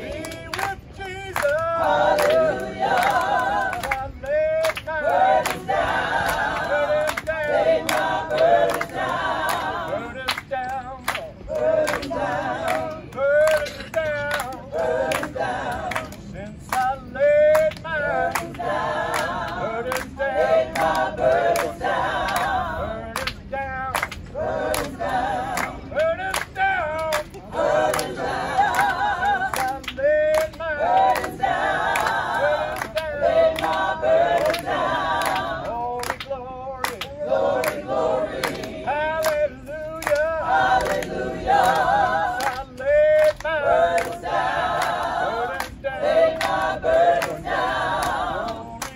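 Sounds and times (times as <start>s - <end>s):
hand claps keeping time: 0.0s - 20.1s, 23.2s - 48.9s
gospel choir singing a cappella: 0.0s - 48.9s.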